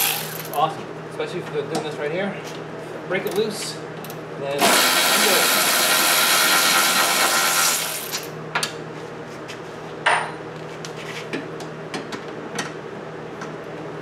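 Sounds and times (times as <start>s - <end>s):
impact wrench running: 0.0s - 0.6s, 4.6s - 8.3s.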